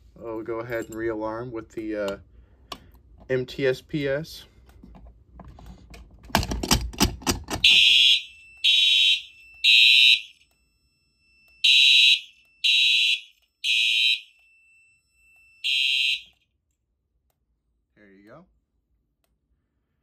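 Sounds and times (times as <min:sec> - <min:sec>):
fire alarm horn blasts: 0:07.6 - 0:16.4.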